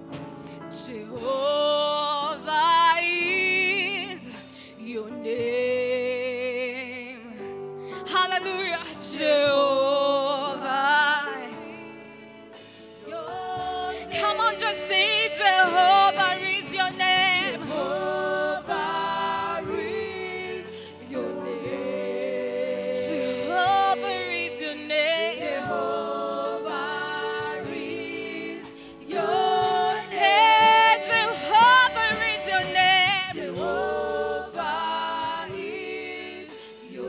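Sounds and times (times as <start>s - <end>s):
gospel voices singing: 8.1s - 37.0s.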